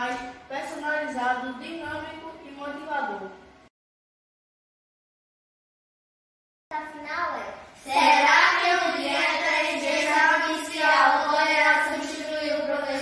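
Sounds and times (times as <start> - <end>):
children's voices in sing-song unison: 7.8 - 13.0.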